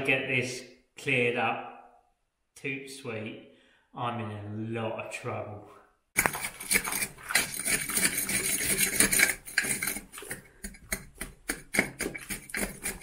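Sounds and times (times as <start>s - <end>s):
tool scraping mortar from stone: 6.2s - 13.0s.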